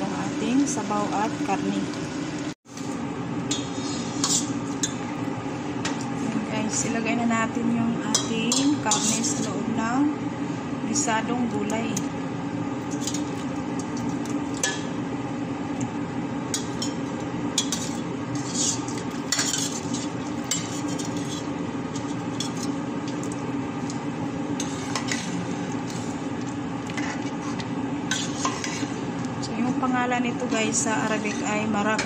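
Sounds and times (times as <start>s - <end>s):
steady low hum: 0.0s - 32.0s
spoon scraping a metal pot: 3.5s - 4.6s, 17.6s - 22.7s, 27.0s - 29.0s, 31.0s - 31.7s.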